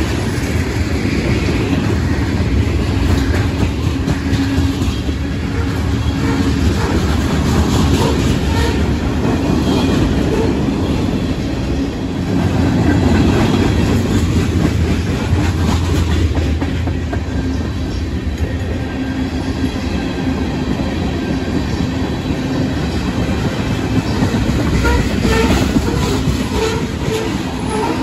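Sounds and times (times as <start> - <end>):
steel wheels rumbling on rail: 0.0 - 28.0.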